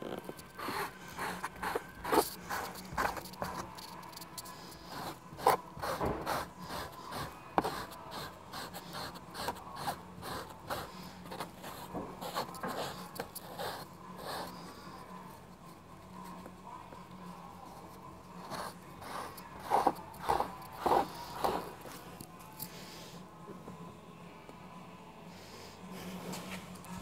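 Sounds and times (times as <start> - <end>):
pumice scrubbing carpet: 0.5 - 9.5, 18.4 - 22.0.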